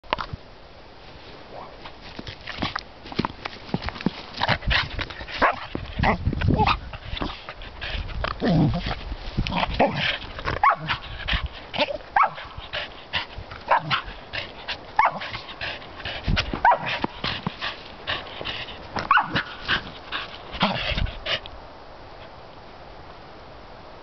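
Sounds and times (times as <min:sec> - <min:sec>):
dog barking and yipping: 0:05.4 - 0:06.8, 0:10.6 - 0:11.0, 0:11.8 - 0:12.6, 0:13.6 - 0:14.1, 0:15.0 - 0:15.4, 0:16.6 - 0:17.1, 0:19.0 - 0:19.6.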